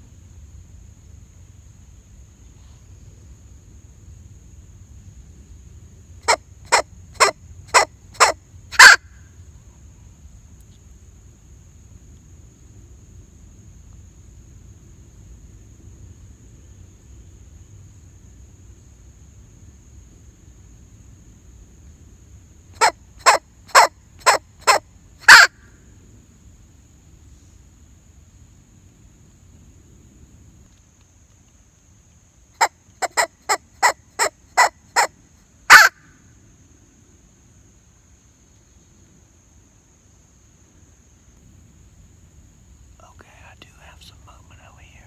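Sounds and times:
squirrel call barks: 0:06.2 - 0:09.1, 0:22.8 - 0:25.6, 0:32.6 - 0:35.1, 0:35.7 - 0:36.0.

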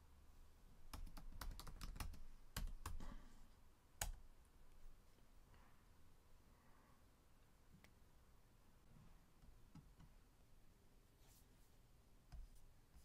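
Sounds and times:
faint keyboard typing: 0:00.8 - 0:03.3, 0:04.0 - 0:04.3.

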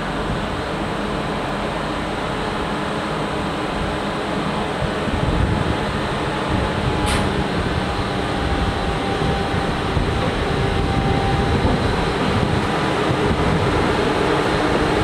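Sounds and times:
electric locomotive running with whine: 0:00.0 - 0:15.0.

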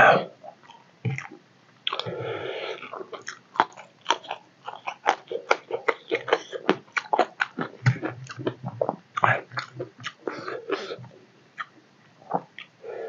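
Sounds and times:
person chewing with wet mouth sounds: 0:00.6 - 0:12.8.

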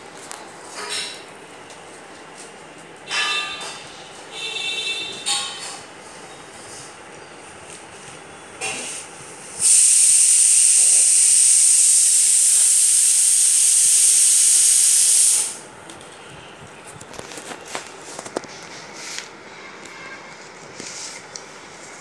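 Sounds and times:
loud steady hiss: 0:08.6 - 0:15.8.

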